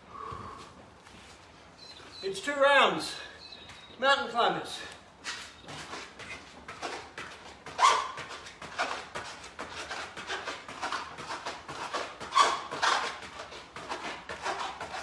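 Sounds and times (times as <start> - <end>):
man breathing hard: 0.0 - 0.8.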